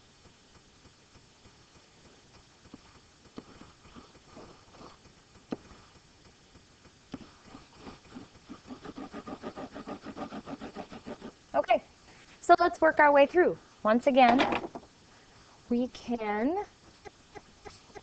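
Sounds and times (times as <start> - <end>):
stylus scrubbing back and forth: 2.7 - 6.4, 7.1 - 12.4, 16.3 - 18.0.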